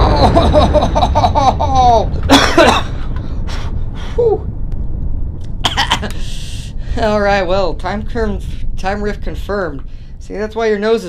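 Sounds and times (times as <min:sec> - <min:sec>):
person coughing: 0:02.2 - 0:03.1, 0:05.6 - 0:06.3.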